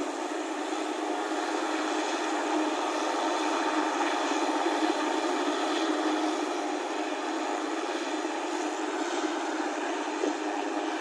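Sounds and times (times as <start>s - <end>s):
helicopter engine and rotors: 0.0s - 11.0s.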